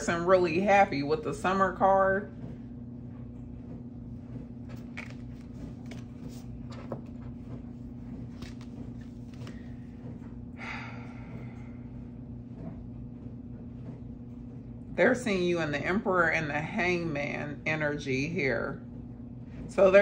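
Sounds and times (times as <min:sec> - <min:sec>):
low hum: 0:00.0 - 0:20.0
cards rustling: 0:04.7 - 0:07.1, 0:08.3 - 0:09.6.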